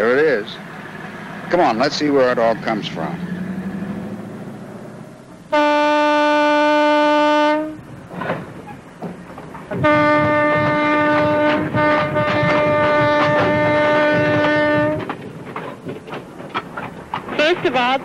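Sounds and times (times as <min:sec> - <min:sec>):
locomotive air horn blasts: 0:05.5 - 0:07.9, 0:09.8 - 0:15.2
low rattle: 0:07.9 - 0:18.0.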